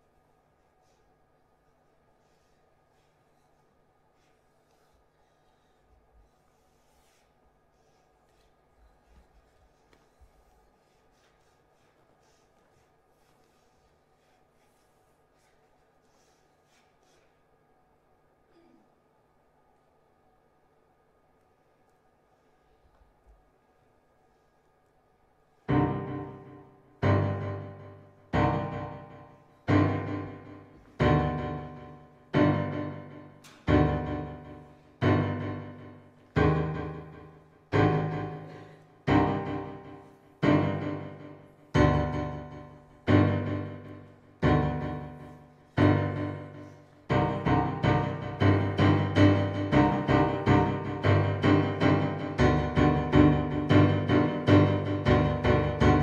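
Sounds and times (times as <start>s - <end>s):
piano music: 25.7s - 56.0s.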